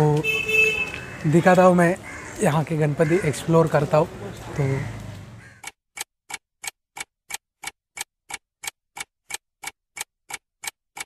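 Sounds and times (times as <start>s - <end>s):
clock ticking: 5.6s - 11.0s.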